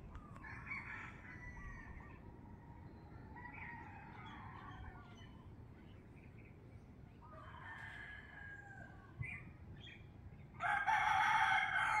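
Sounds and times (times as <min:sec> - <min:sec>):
rooster crowing: 0:10.6 - 0:12.0.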